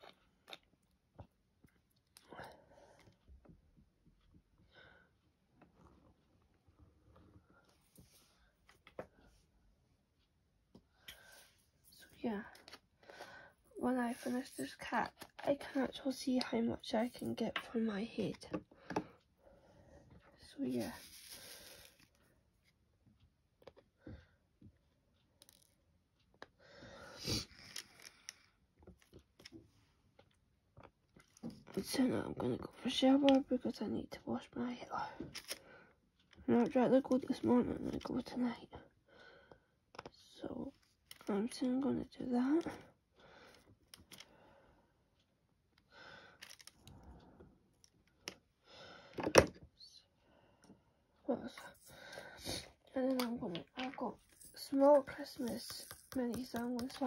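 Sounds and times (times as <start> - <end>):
rustling scrape: 13.9 - 14.9, 20.7 - 22.0
pen clicking and tapping: 55.1 - 57.0.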